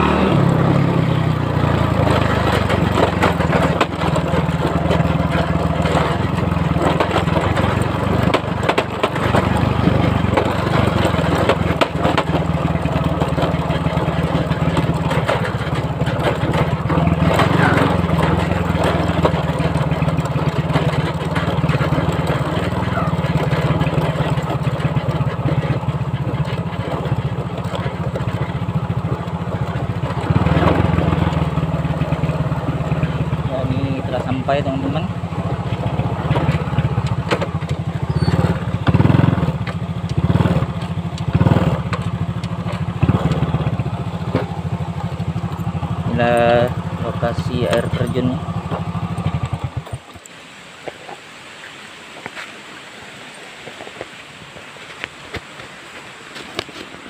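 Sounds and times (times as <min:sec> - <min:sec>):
small motorbike engine running: 0:00.0 - 0:50.4
motorbike jolting knocks: 0:34.4 - 0:50.1.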